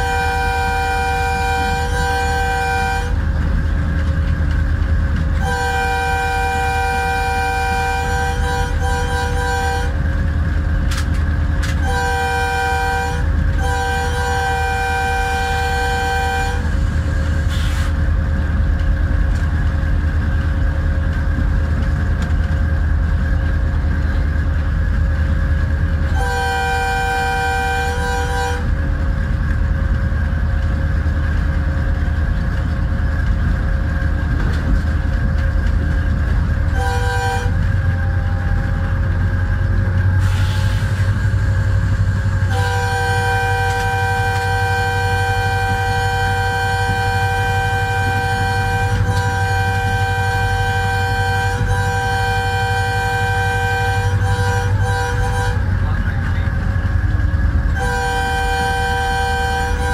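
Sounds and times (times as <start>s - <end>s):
locomotive air horn blasts: 0.0s - 3.2s, 5.4s - 10.0s, 11.7s - 16.8s, 26.0s - 28.7s, 36.7s - 38.6s, 40.2s - 41.6s, 42.3s - 55.9s, 57.7s - 59.9s
engine and wheels rumbling: 0.0s - 59.9s.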